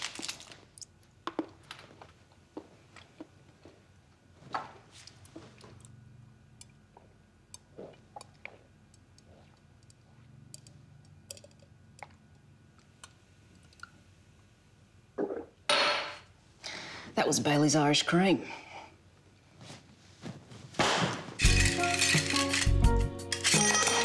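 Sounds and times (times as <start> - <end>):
person gulping a drink: 6.7 - 10.3, 15.2 - 15.6.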